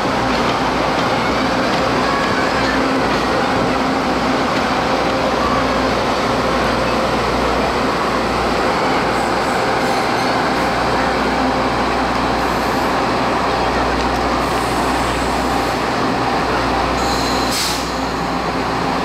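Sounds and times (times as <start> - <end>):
diesel train rolling on track: 0.0 - 19.0.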